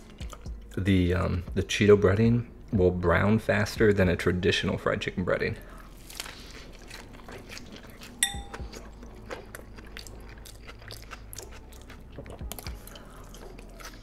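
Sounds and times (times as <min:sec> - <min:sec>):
chewing and crunching: 0:00.0 - 0:00.8, 0:05.6 - 0:14.0.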